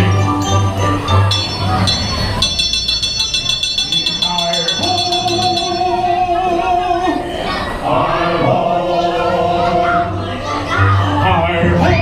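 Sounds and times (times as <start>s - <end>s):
group of voices singing: 5.8s - 12.0s.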